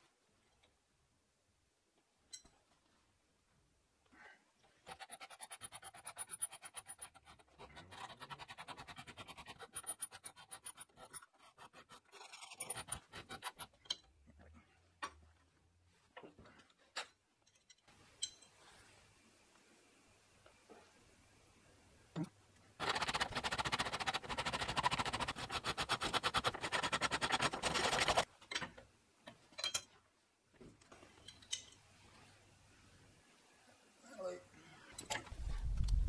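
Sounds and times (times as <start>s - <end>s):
hand file rasping on metal: 4.8s - 13.8s, 22.8s - 28.2s.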